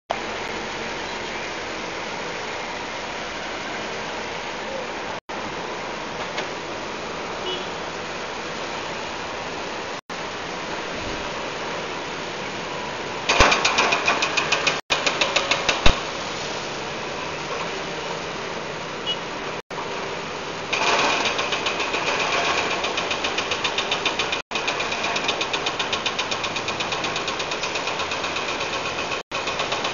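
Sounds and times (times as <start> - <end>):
truck diesel engine drone: 0.1 - 29.9
rapid rhythmic mechanical clatter: 13.3 - 15.9, 20.7 - 29.9.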